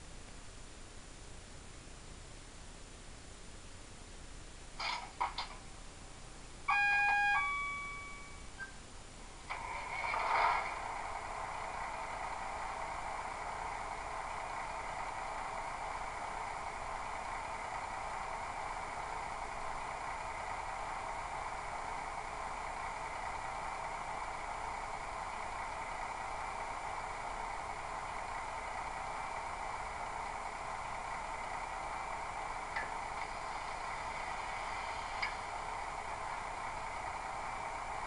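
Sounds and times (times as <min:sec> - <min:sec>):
diesel idle through small speaker: 0:09.5 - 0:38.0.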